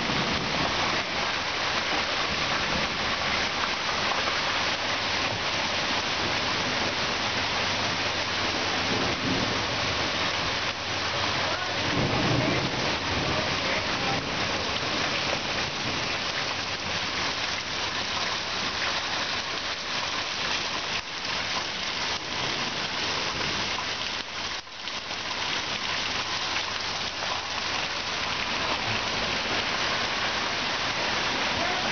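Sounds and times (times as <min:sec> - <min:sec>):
heavy rain pouring: 0:00.0 - 0:31.9.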